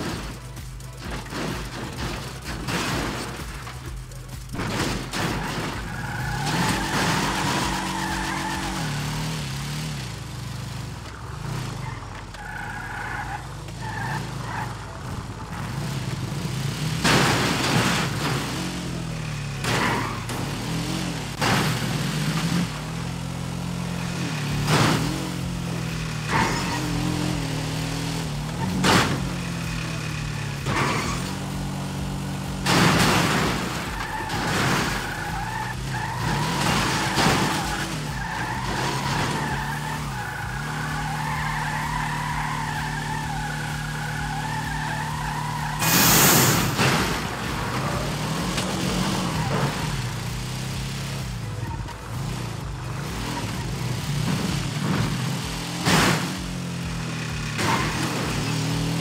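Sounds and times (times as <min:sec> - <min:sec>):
vehicle engine running: 0:00.0 - 0:59.0
loud bangs: 0:24.0 - 0:51.2.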